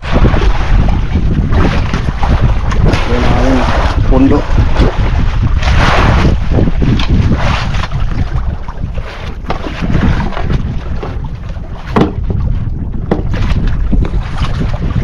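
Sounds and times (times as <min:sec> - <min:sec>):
water washing against boat hull: 0:00.0 - 0:15.0
wind rumbling on microphone: 0:00.0 - 0:15.0
sharp knocks: 0:11.9 - 0:12.2, 0:13.1 - 0:13.4.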